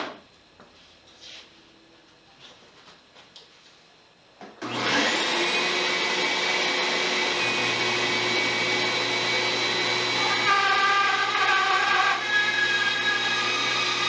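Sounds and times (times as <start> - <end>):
bandsaw whine: 4.6 - 14.0
blade cutting wood: 4.6 - 14.0.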